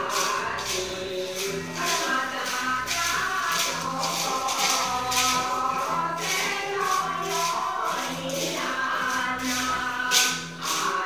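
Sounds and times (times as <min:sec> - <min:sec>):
dance music with shaker percussion: 0:00.0 - 0:11.0.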